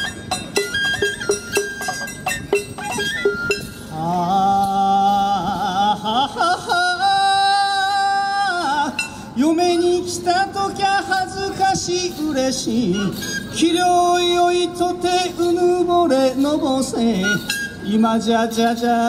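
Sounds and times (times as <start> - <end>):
plucked strings: 0.0 - 4.0
person singing long wavering notes: 3.9 - 19.0.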